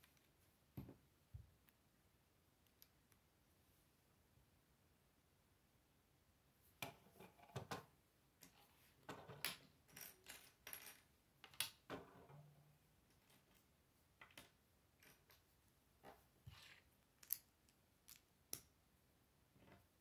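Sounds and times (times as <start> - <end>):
plastic bricks clicking: 16.6 - 18.7.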